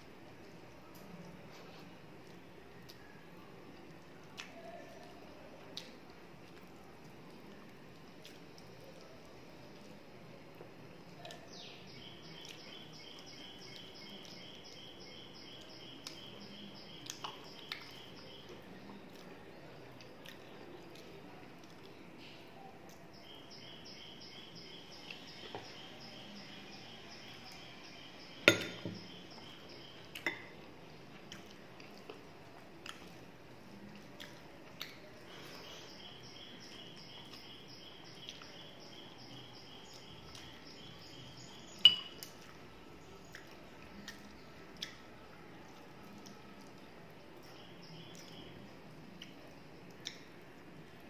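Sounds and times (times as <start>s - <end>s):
sharp clinks against dishes: 41.8s - 42.2s.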